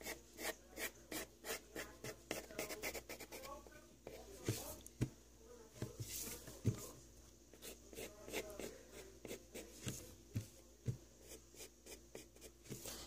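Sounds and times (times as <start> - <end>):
pencil scratching on paper: 0.0 - 3.5, 7.6 - 10.0.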